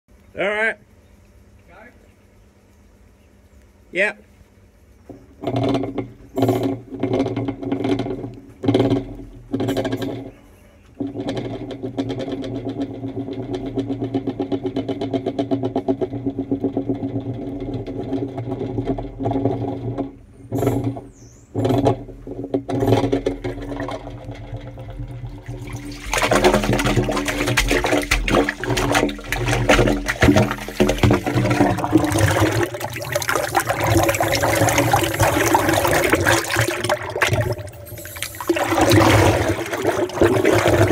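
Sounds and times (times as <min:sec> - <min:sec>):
machine humming with pulsing: 0:05.2 - 0:40.9
water rushing through pipe: 0:11.0 - 0:40.9.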